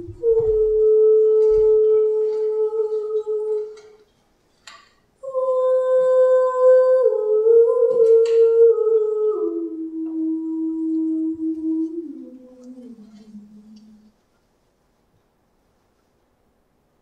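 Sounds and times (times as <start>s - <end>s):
person humming: 0.0s - 4.0s, 5.2s - 14.2s.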